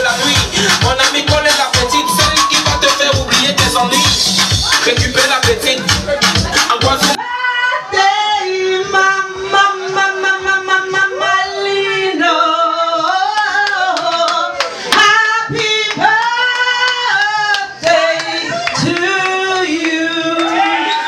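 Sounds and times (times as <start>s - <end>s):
music with sung vocals: 0.0s - 21.0s.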